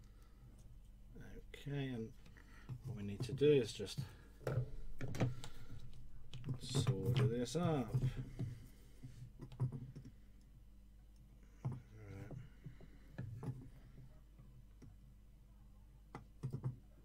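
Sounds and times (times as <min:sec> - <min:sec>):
faint clicks and taps: 0:02.2 - 0:10.5, 0:16.1 - 0:16.8.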